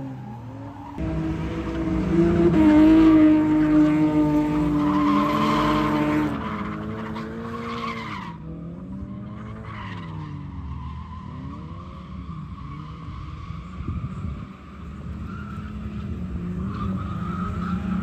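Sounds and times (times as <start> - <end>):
tyres skidding: 0.0 - 18.0
car engine revving high: 1.0 - 7.6.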